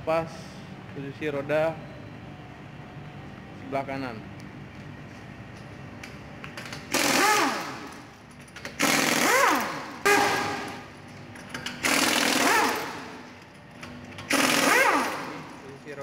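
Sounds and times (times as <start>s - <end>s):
pneumatic impact wrench spinning: 6.6s - 10.9s, 11.5s - 13.3s, 14.2s - 15.6s.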